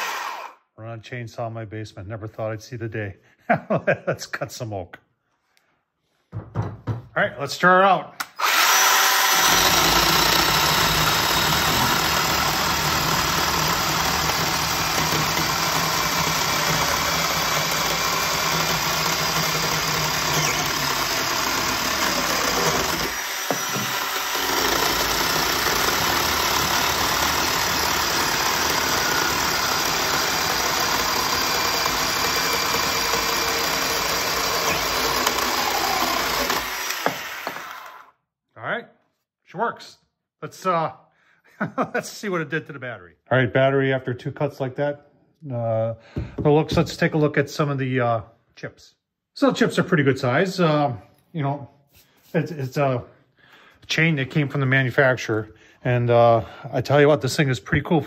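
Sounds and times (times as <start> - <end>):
electric chainsaw cutting wood: 0.0 - 0.6, 8.3 - 38.1.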